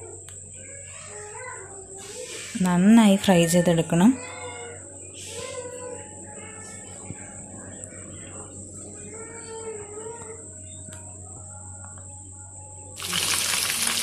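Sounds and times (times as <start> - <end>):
faint wavering pitched sounds: 0.0 - 14.0
high-pitched insect-like trill: 0.0 - 14.0
low hum: 4.8 - 14.0.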